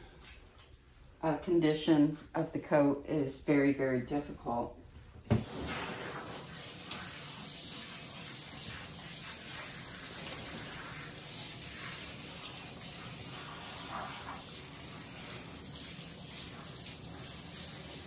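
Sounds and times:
water spraying hiss: 0:05.2 - 0:18.0.

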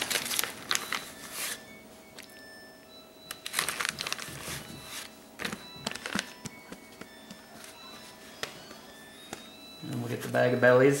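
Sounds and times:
plastic bag rustling: 0:00.0 - 0:01.7, 0:03.3 - 0:06.4.

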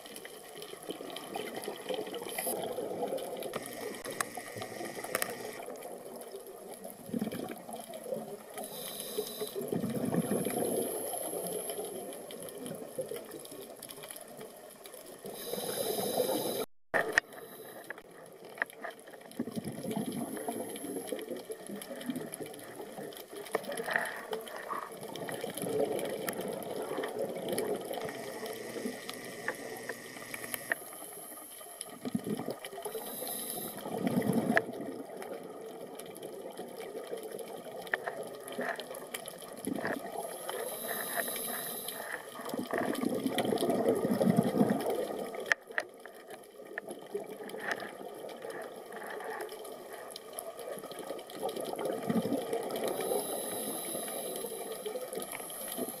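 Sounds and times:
exhaled bubbles rushing: 0:00.8 - 0:08.5, 0:09.6 - 0:13.4, 0:19.3 - 0:23.9, 0:24.6 - 0:30.6, 0:31.9 - 0:37.7, 0:42.4 - 0:45.5, 0:50.5 - 0:56.0
regulator inhalation hiss: 0:08.6 - 0:09.7, 0:15.2 - 0:16.7, 0:17.3 - 0:18.0, 0:28.0 - 0:31.7, 0:32.8 - 0:33.9, 0:40.3 - 0:42.3, 0:52.8 - 0:56.0.

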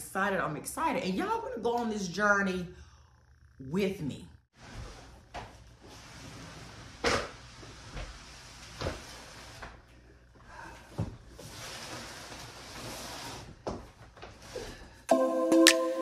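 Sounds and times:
box sliding on laminate floor: 0:11.4 - 0:13.6.

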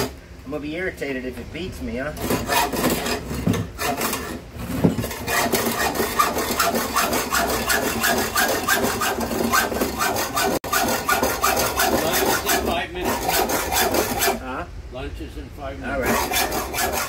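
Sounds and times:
hacksaw cutting metal: 0:02.2 - 0:14.4, 0:15.9 - 0:17.0.

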